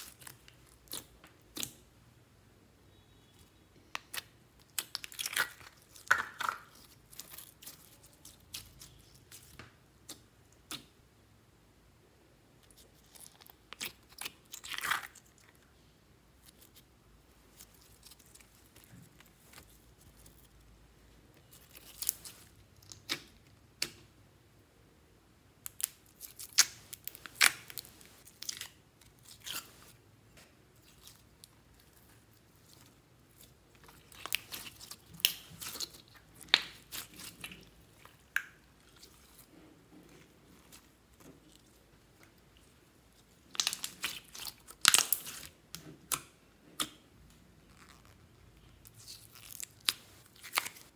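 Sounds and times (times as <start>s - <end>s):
slime wet pops and crackles: 0.0s - 1.9s, 3.9s - 11.0s, 21.4s - 24.1s, 25.6s - 29.7s, 30.8s - 39.4s, 40.7s - 47.2s.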